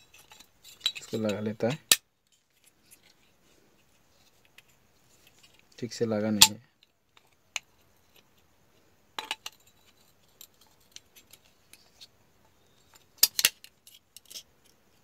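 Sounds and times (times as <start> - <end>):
metal and plastic parts clicking: 12.9 - 14.8.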